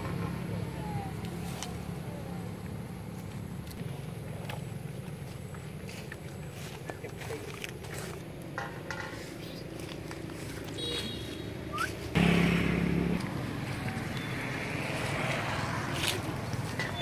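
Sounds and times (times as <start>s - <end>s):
vehicle passing by: 10.3s - 17.0s.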